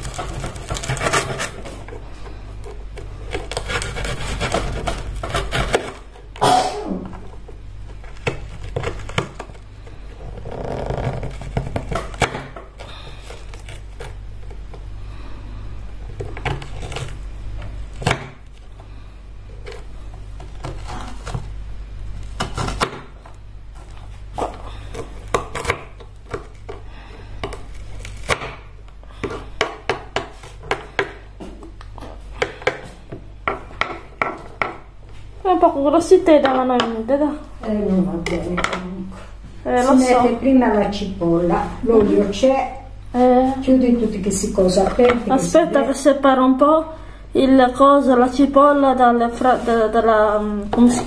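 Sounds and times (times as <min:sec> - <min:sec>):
steady low hum: 0:00.0 - 0:51.0
knife chopping on cutting board: 0:24.4 - 0:26.0, 0:28.2 - 0:31.5.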